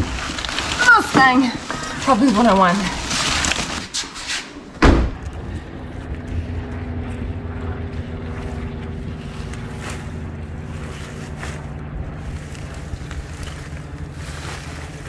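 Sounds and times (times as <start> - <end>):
car door slamming: 4.8 - 5.2
car engine running: 4.9 - 15.0.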